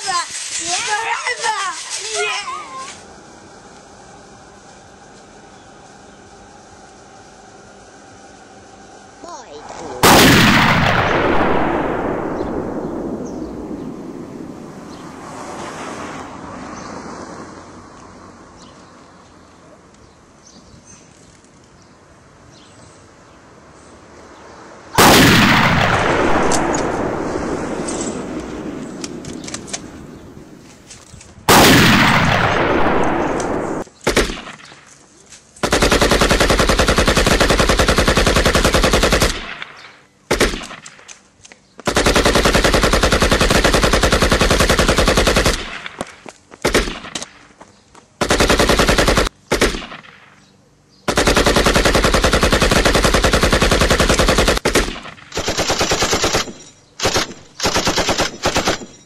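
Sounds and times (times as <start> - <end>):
loud blast: 9.8 - 16.4, 25.0 - 30.6, 31.5 - 34.4
machine-gun fire bursts: 10.0 - 14.2, 25.0 - 30.3, 31.5 - 34.7, 35.6 - 40.8, 41.9 - 46.0, 48.2 - 50.2, 51.1 - 59.0.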